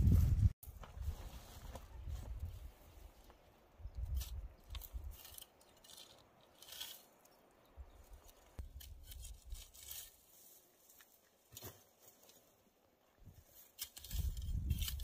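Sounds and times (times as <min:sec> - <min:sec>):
dry straw rustling: 0:00.0 - 0:07.4, 0:08.0 - 0:12.5.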